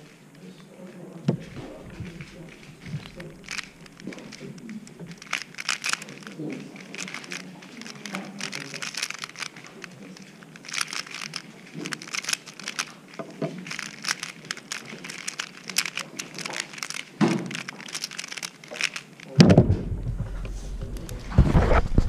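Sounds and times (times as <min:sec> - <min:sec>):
plastic puzzle clicking: 0:00.0 - 0:19.6
puzzle set down thump: 0:01.2 - 0:06.0, 0:17.2 - 0:17.9, 0:19.4 - 0:22.0.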